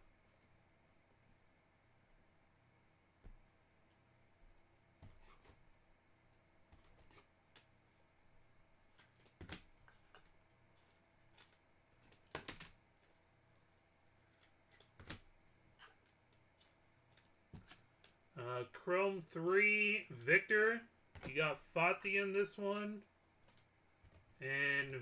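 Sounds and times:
trading cards rustling and clicking: 0:08.8 - 0:18.2, 0:20.0 - 0:25.0.

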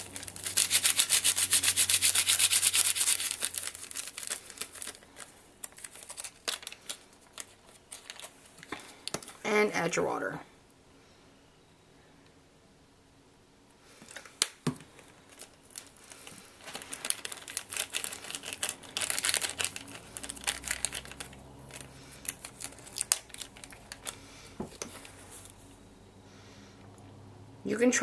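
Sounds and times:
plastic bag crinkling: 0:00.0 - 0:09.4, 0:14.0 - 0:25.7.

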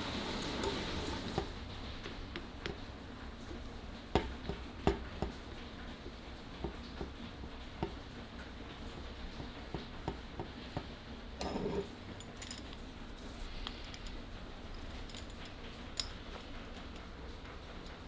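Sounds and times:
clicks and taps of egg beater: 0:00.6 - 0:11.0.

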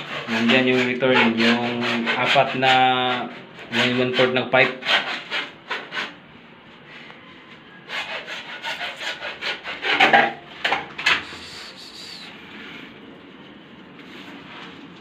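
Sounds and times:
hand tool rasping on plastic pipe: 0:00.0 - 0:06.2, 0:07.9 - 0:10.1.

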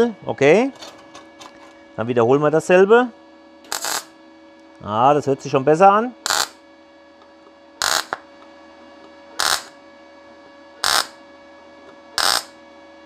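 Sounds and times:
welding arc bursts: 0:03.7 - 0:04.1, 0:06.3 - 0:06.6, 0:07.8 - 0:08.2, 0:09.4 - 0:09.8, 0:10.8 - 0:11.2, 0:12.2 - 0:12.5.

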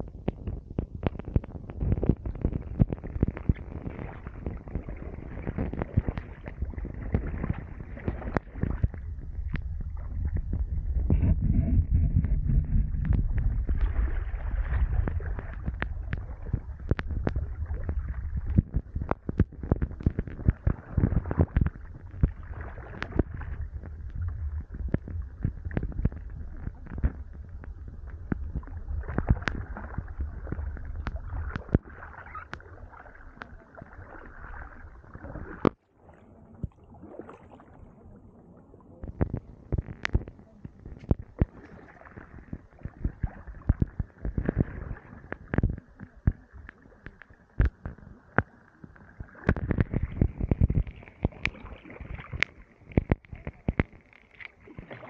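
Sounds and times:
low rumble: 0:00.0 - 0:32.0.

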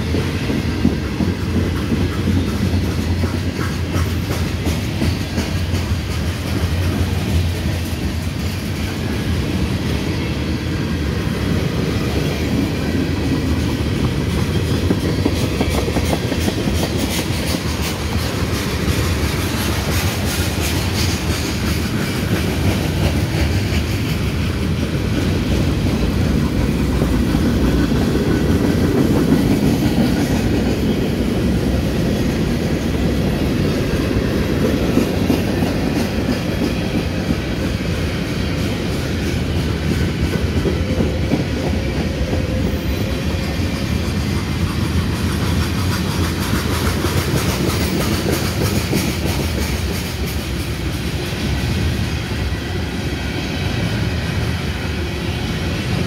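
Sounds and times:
wheels clicking over rail joints: 0:00.0 - 0:52.4
train wheels rumbling on rails: 0:00.0 - 0:56.0.

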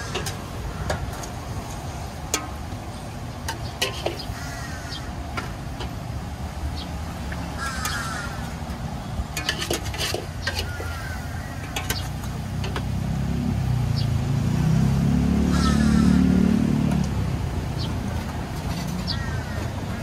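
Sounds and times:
serving spoons clinking on metal trays: 0:00.0 - 0:01.4, 0:03.4 - 0:04.3, 0:09.3 - 0:12.9
vehicle engine passing: 0:10.7 - 0:20.0.

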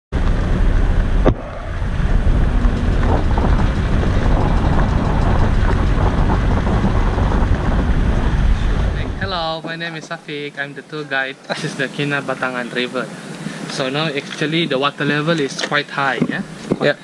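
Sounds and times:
vehicle rumble: 0:00.1 - 0:09.6
wind buffeting microphone: 0:00.1 - 0:09.8.

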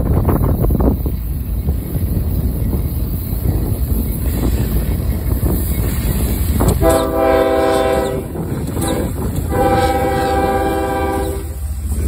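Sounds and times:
locomotive rumbling: 0:00.0 - 0:12.0
locomotive air horn blasts: 0:06.8 - 0:11.7.

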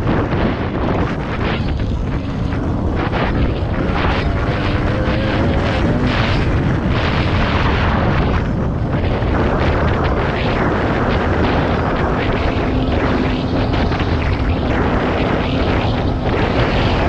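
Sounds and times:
two-stroke engine running: 0:00.0 - 0:09.9
wind buffeting microphone: 0:00.0 - 0:17.0.

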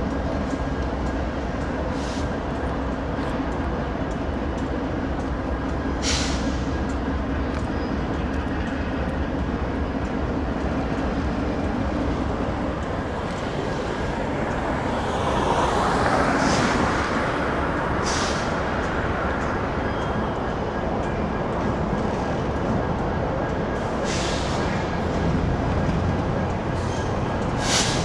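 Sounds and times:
diesel locomotive engines rumbling: 0:00.0 - 0:28.0
short hisses: 0:27.6 - 0:28.0.

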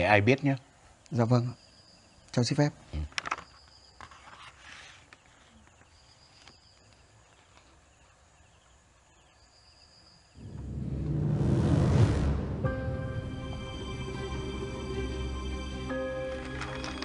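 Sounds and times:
paper rustling: 0:03.2 - 0:06.9, 0:16.3 - 0:17.0
dramatic soundtrack swell: 0:10.4 - 0:16.5
tense music: 0:10.4 - 0:17.0.

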